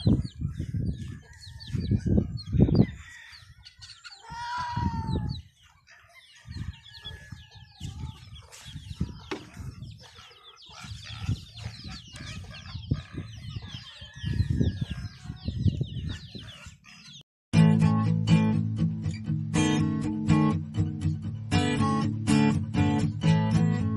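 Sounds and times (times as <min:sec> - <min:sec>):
chickens clucking: 0:00.0 - 0:04.3, 0:05.2 - 0:17.2.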